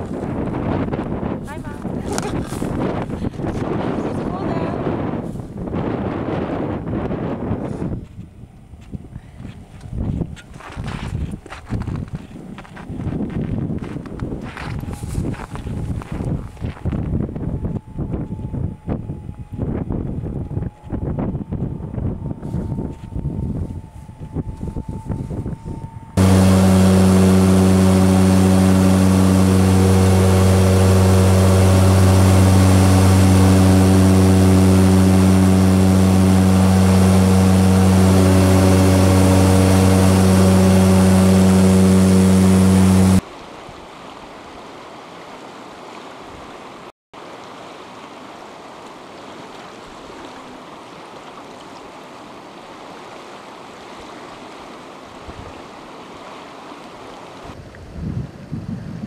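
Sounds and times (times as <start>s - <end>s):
aircraft cabin engine drone: 26.2s - 43.2s.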